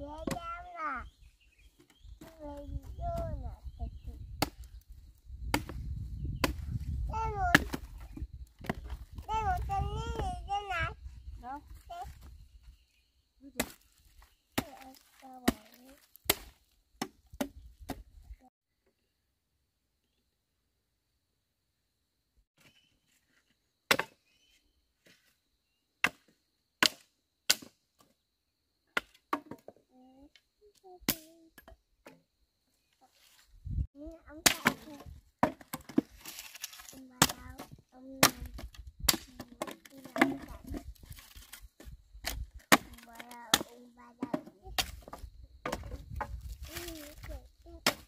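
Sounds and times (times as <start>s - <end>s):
small child's voice: 0.0s - 1.3s, 2.1s - 4.3s, 7.0s - 12.3s, 14.6s - 16.1s, 29.8s - 31.7s, 33.9s - 35.2s, 36.9s - 40.9s, 42.7s - 48.0s
blade chopping firewood log: 5.4s - 5.8s, 6.4s - 6.8s, 13.6s - 13.8s, 14.6s - 18.0s, 26.0s - 27.8s, 34.4s - 40.5s, 41.2s - 47.0s
machete chopping wood: 5.4s - 5.8s, 6.4s - 6.7s, 7.5s - 7.9s, 13.6s - 13.8s, 14.6s - 18.0s, 26.0s - 27.8s.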